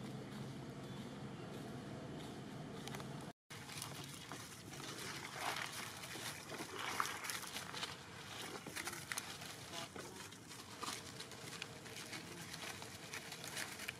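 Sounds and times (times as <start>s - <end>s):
dry leaves crackling and rustling: 3.5s - 13.9s.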